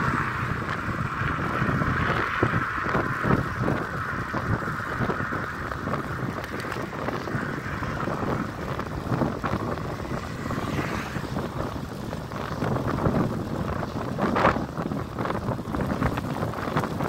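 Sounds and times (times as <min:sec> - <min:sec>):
car passing: 0:00.0 - 0:16.8
tyres rumbling on asphalt: 0:00.0 - 0:17.0
wind rushing over microphone: 0:00.0 - 0:17.0.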